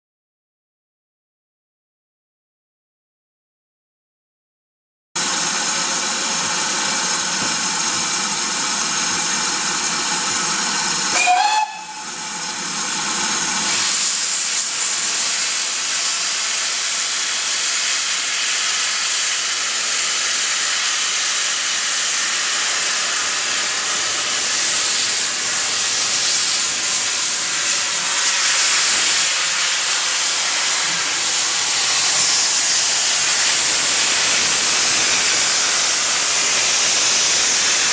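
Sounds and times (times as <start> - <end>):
steam hissing: 5.2 - 37.9
steam whistle: 11.1 - 12.3.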